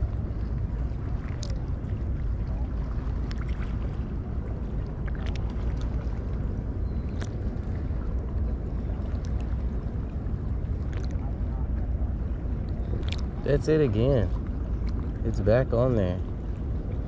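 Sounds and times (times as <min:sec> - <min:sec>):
wind noise on microphone: 0:00.0 - 0:15.4
water sloshing: 0:00.0 - 0:17.0
faint clicks: 0:13.0 - 0:13.3.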